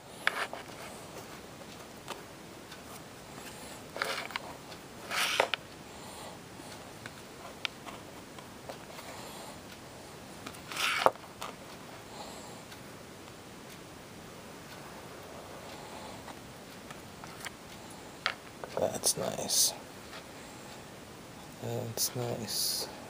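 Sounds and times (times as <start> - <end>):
cards scraping and sliding: 4.0 - 4.4, 5.1 - 5.6, 10.6 - 11.5.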